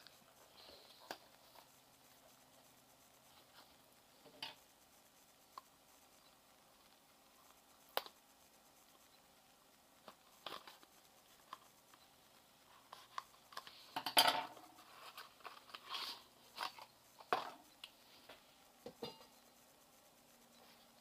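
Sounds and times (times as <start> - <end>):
plastic packaging crackling and rustling: 10.0 - 18.4.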